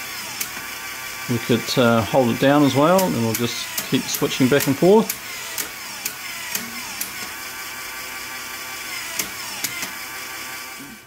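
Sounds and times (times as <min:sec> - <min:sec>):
motor and plastic gears whirring: 0:00.0 - 0:11.0
sharp mechanism clicks: 0:02.9 - 0:07.4, 0:08.9 - 0:10.0.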